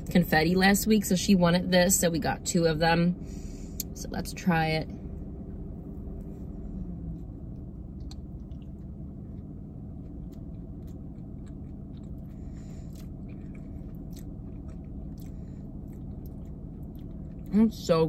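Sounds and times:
steady low hum: 0.0s - 18.0s
person chewing cookie: 5.6s - 17.7s.

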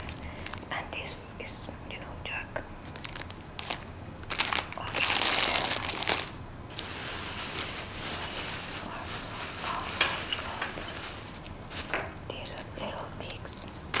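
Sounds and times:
plastic packaging crinkling: 0.0s - 0.7s, 2.8s - 12.4s, 13.3s - 14.0s.

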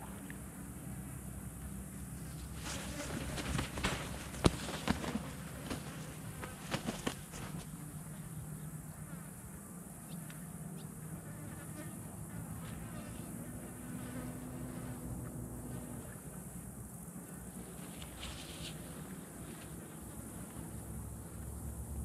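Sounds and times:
fly buzzing: 2.3s - 7.8s.

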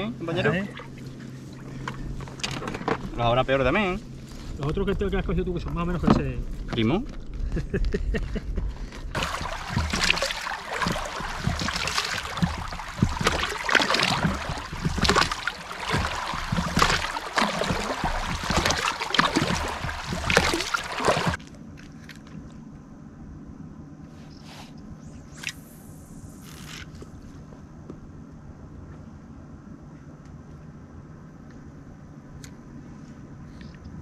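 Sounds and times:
water splashing against pontoons: 9.1s - 21.4s.

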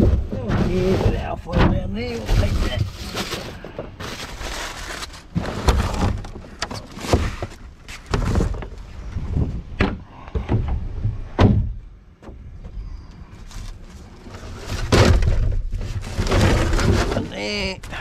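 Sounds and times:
hollow plastic knocks and thuds: 9.3s - 12.8s.

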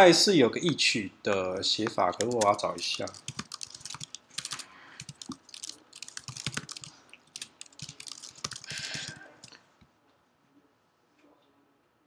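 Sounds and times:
typing on computer keyboard: 2.2s - 9.5s.

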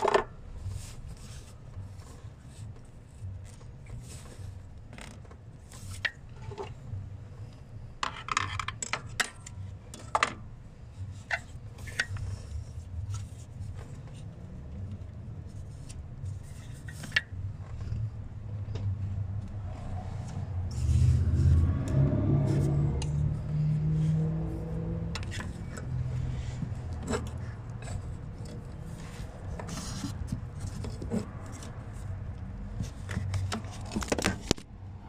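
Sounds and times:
vehicle engine rumble: 9.5s - 35.0s
plastic clicks and scrapes: 32.8s - 34.6s.

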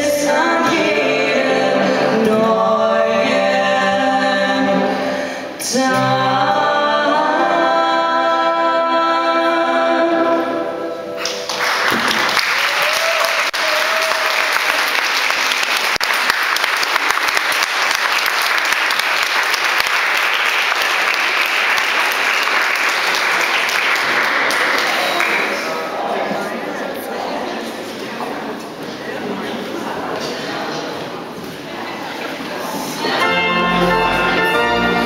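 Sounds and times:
audience applause: 11.2s - 26.1s.

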